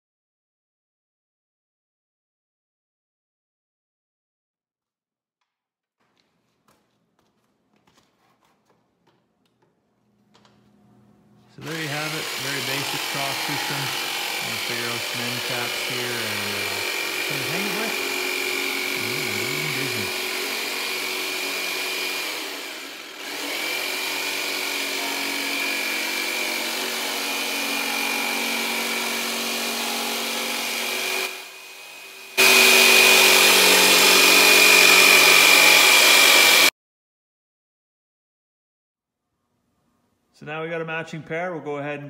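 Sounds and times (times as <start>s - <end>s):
power tool cutting wood: 11.5s - 36.7s.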